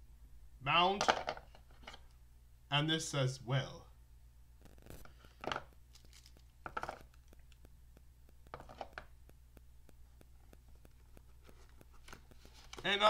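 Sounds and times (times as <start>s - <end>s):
faint low hum: 0.0s - 13.0s
packaging crinkling: 4.6s - 7.7s.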